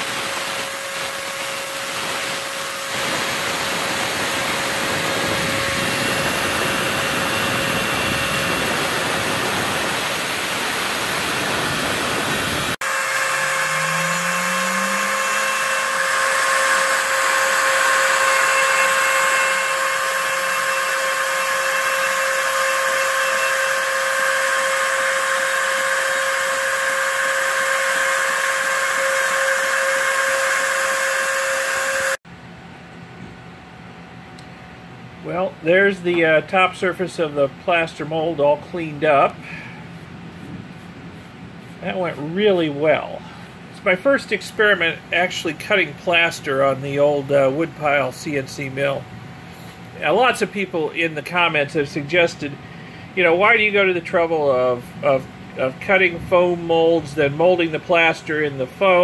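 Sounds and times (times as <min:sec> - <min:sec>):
vacuum dust extraction hiss: 0:00.0 - 0:32.2
router spindle whining: 0:00.5 - 0:32.2.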